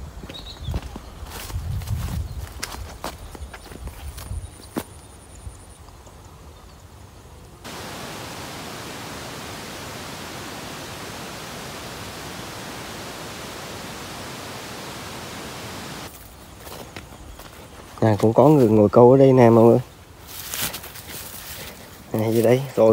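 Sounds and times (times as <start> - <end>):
steady static hiss: 4.7 - 22.9.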